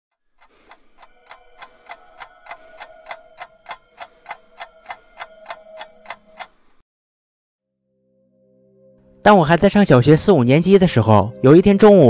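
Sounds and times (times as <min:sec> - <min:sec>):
clock ticking: 0:00.4 - 0:06.8
steady ringing tone: 0:00.9 - 0:06.8.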